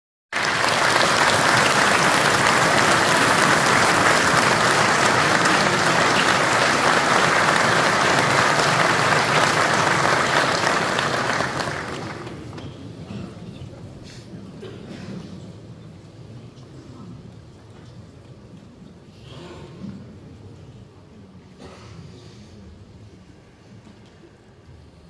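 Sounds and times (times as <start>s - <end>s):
large audience applauding: 0.3s - 12.6s.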